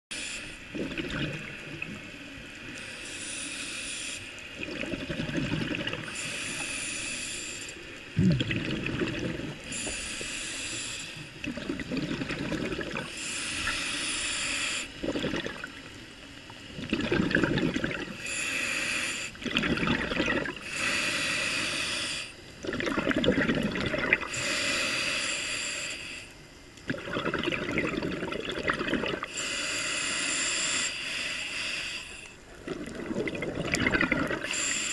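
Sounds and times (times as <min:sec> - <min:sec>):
diver breathing through regulator: 0:02.7 - 0:04.4, 0:06.0 - 0:08.0, 0:09.2 - 0:11.4, 0:13.0 - 0:15.4, 0:17.9 - 0:19.4, 0:20.6 - 0:22.4, 0:24.1 - 0:26.4, 0:29.2 - 0:32.4, 0:33.8 - 0:34.9
bubbling exhale: 0:02.7 - 0:15.9, 0:16.6 - 0:34.9.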